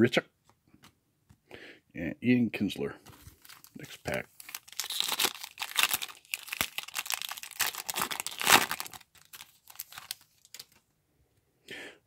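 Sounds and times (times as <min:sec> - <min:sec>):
card pack wrapper crinkling and tearing: 0:03.1 - 0:10.8.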